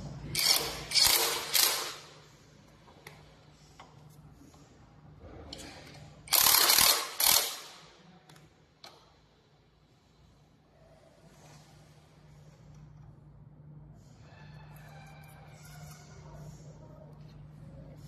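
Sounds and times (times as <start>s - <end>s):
impact wrench hammering: 0.4s - 2.1s, 6.3s - 7.8s.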